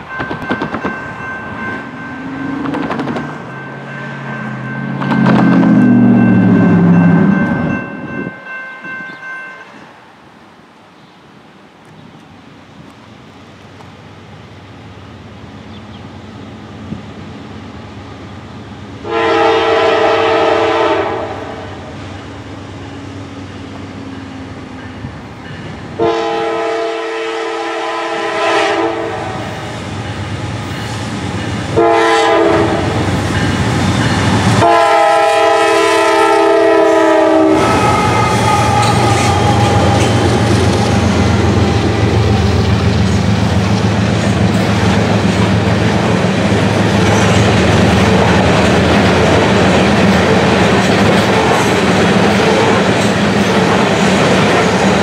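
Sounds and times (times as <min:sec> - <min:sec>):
freight cars rumbling: 0:00.0 - 0:08.4, 0:32.4 - 0:36.0, 0:37.4 - 0:55.0
train wheels clacking on rails: 0:00.0 - 0:09.3, 0:24.0 - 0:26.0, 0:29.8 - 0:55.0
diesel locomotive engine drone: 0:00.0 - 0:55.0
locomotive air horn: 0:19.0 - 0:21.9, 0:26.0 - 0:29.7, 0:31.8 - 0:33.0, 0:34.6 - 0:42.0.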